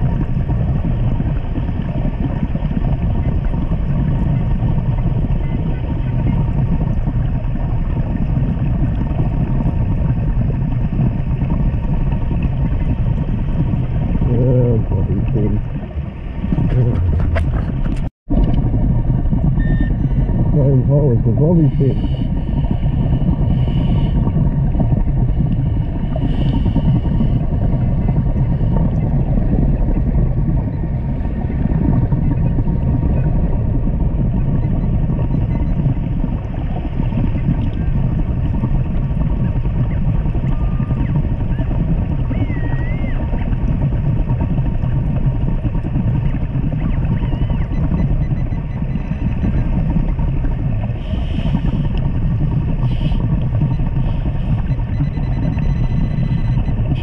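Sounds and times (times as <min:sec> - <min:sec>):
low underwater rumble: 0:00.0 - 0:57.0
faint short beeps: 0:19.6 - 0:20.3, 0:54.5 - 0:57.0.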